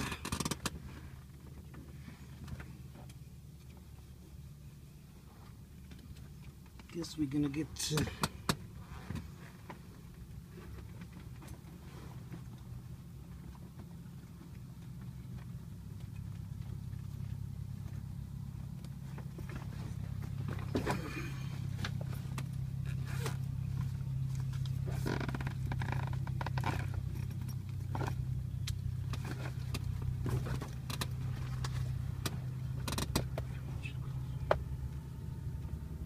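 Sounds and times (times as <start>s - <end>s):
propeller engine idling drone: 0.0s - 36.0s.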